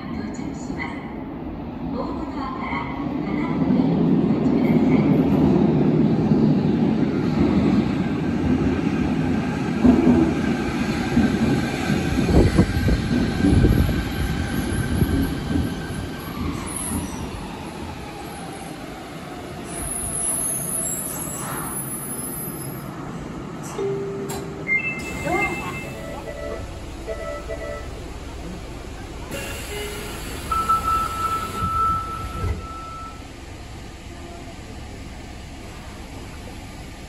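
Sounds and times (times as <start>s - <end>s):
train running rumble: 2.0s - 18.5s, 21.4s - 37.0s
train braking to a stop: 9.9s - 28.2s, 29.3s - 33.3s.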